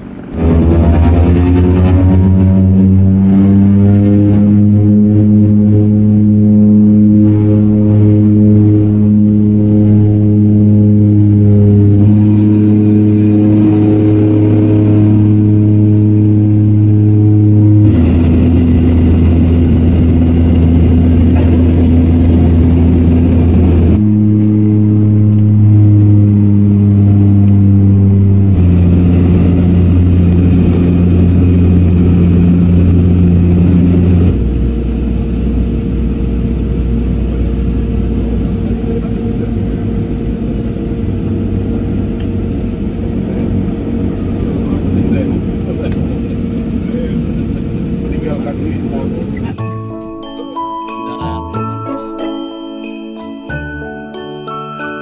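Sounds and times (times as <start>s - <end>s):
propeller plane engine drone: 0.0s - 55.0s.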